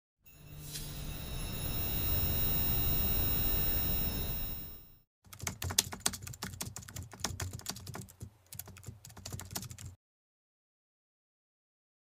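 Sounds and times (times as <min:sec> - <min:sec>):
low drone: 0:00.3 - 0:04.9
computer keyboard typing clicks: 0:05.3 - 0:10.0.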